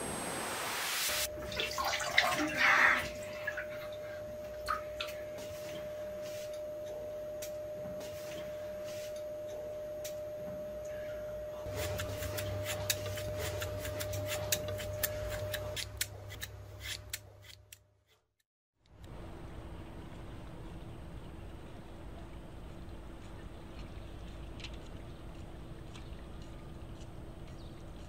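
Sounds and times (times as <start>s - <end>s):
low hum: 18.9s - 28.0s.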